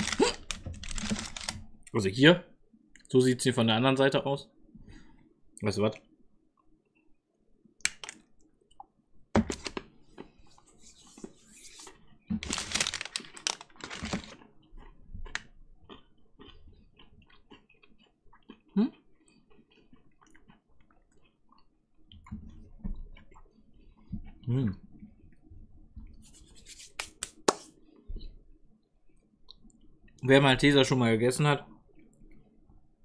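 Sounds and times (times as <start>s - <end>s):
crunching chocolate bar: 0.0s - 1.6s, 12.4s - 14.5s.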